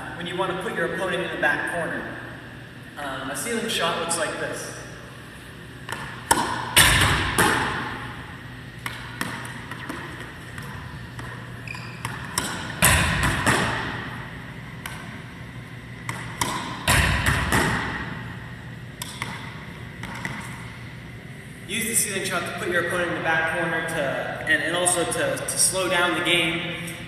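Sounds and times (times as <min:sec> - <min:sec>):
racquetball hits echoing: 0:05.8 - 0:20.8.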